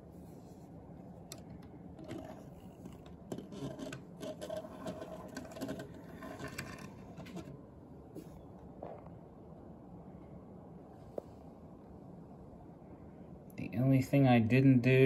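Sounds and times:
handling clicks taps and scrapes: 0:01.2 - 0:07.6.

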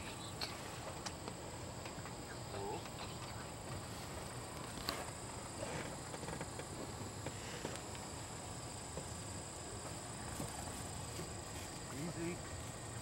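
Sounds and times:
insects chirring: 0:00.0 - 0:13.0
rustling in grass: 0:09.9 - 0:13.0.

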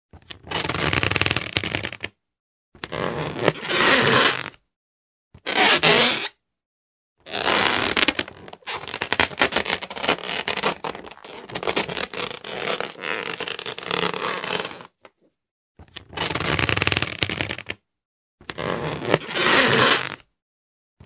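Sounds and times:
rubber balloon being rubbed: 0:00.4 - 0:02.1, 0:02.9 - 0:04.6, 0:05.4 - 0:06.3, 0:07.3 - 0:15.0, 0:16.2 - 0:17.8, 0:18.6 - 0:20.3.

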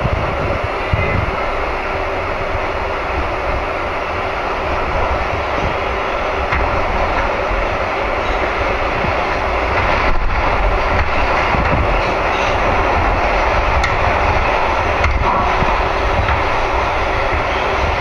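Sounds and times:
subway train rumbling on track: 0:00.0 - 0:18.0.

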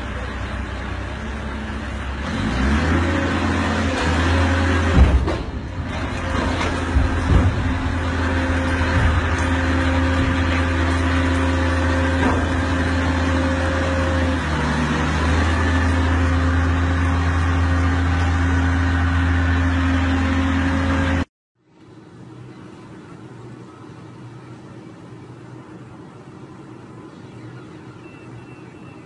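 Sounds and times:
diesel engine droning: 0:00.0 - 0:29.0
sharp knocks: 0:04.8 - 0:12.8.

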